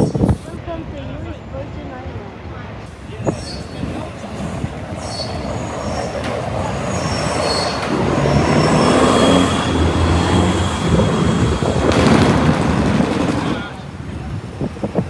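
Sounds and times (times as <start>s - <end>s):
cars passing: 0.4s - 15.0s
vehicle engine: 2.8s - 15.0s
short high squeals: 4.9s - 6.2s, 6.8s - 11.7s.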